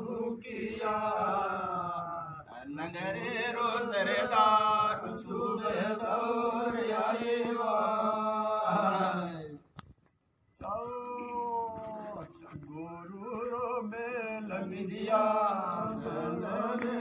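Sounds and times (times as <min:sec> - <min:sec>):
men chanting: 0:00.0 - 0:09.5, 0:13.1 - 0:17.0.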